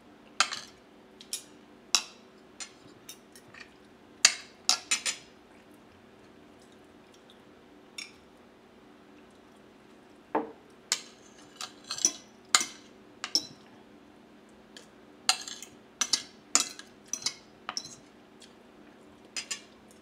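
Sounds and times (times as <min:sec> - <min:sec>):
cutlery clinking on ceramic plate: 0:15.3 - 0:18.0, 0:19.4 - 0:19.7.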